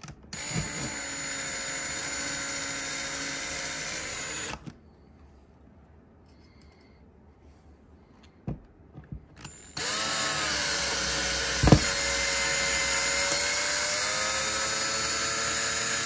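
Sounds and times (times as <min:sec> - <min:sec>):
electric drill running: 0:00.3 - 0:04.6, 0:09.4 - 0:16.0.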